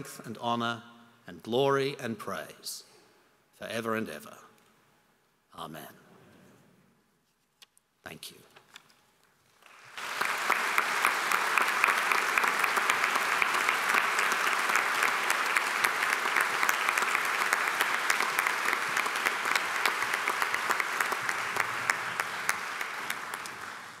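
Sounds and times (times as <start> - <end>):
audience applauding: 9.6 - 24.0.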